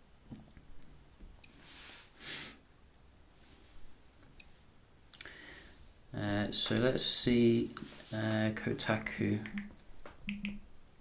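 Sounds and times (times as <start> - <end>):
soft rush of noise: 1.4 - 10.1
fingertips tapping touchscreen: 9.4 - 10.6.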